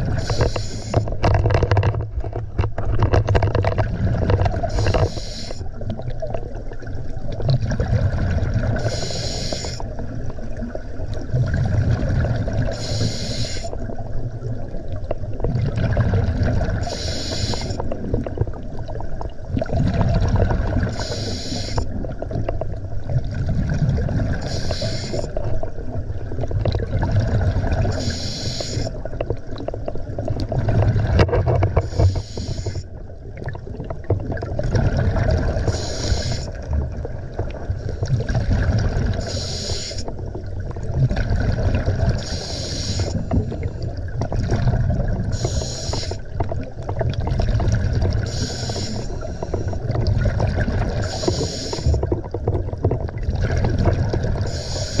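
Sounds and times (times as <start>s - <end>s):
diver breathing through a regulator: 0.0s - 1.2s, 4.2s - 5.8s, 8.7s - 9.9s, 12.6s - 13.8s, 16.8s - 18.0s, 20.6s - 22.0s, 24.2s - 25.4s, 27.8s - 29.1s, 31.7s - 32.9s, 35.5s - 36.7s, 39.0s - 40.1s, 41.8s - 44.0s, 45.2s - 46.4s, 48.1s - 52.2s, 54.2s - 55.0s
steady low rumble: 0.0s - 1.3s
exhaled bubbles bursting: 5.8s - 9.0s, 9.8s - 12.8s, 13.8s - 17.0s, 17.7s - 21.0s, 21.8s - 28.1s, 33.0s - 39.4s, 40.2s - 42.4s, 43.2s - 45.5s, 46.2s - 55.0s.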